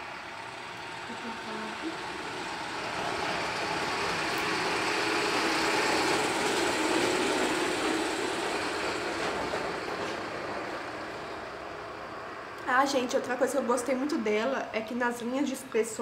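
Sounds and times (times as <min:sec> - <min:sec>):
vehicle passing by: 0:00.0 - 0:14.1.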